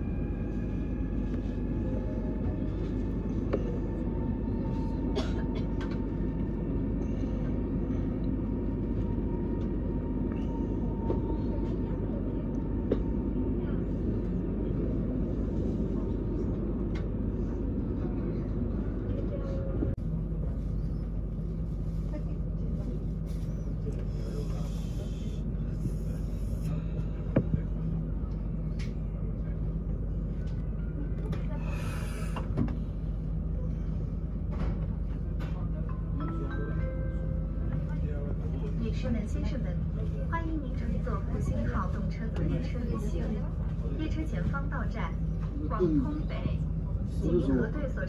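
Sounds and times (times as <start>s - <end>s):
train interior rumble and hum: 0.0s - 48.0s.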